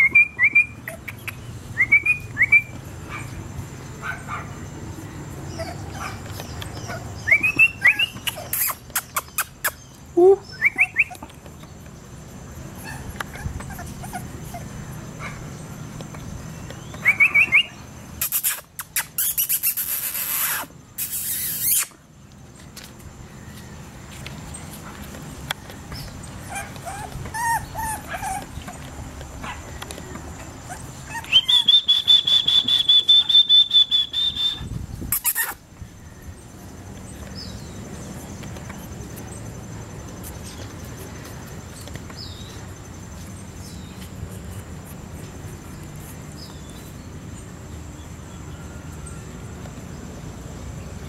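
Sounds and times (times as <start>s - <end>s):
puppy whimpering: 6.9s - 11.2s, 12.8s - 14.8s, 26.4s - 28.9s, 30.5s - 32.2s.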